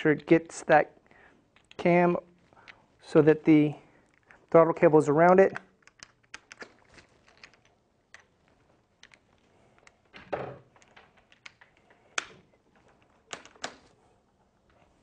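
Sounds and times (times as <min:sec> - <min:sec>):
plastic parts clicking: 0:01.5 - 0:01.8, 0:05.5 - 0:08.3, 0:08.9 - 0:13.9
soft rustle: 0:06.6 - 0:10.2, 0:10.9 - 0:15.0.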